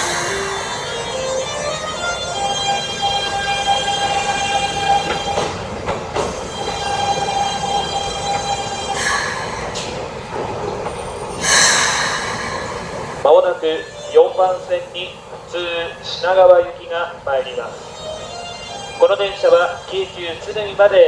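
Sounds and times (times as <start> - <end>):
train wheels squealing: 6.2 - 14.6
hiss bursts: 11.3 - 13.2.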